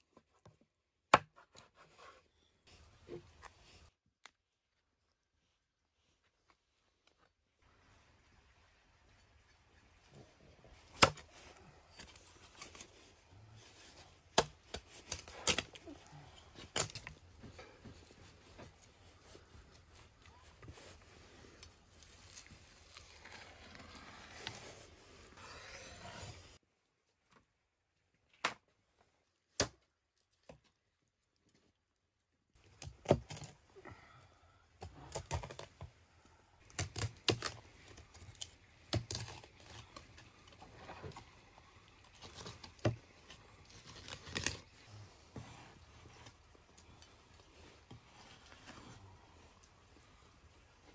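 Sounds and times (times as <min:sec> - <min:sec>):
knife cutting and scraping fish: 0:21.0 - 0:26.6, 0:36.7 - 0:44.7.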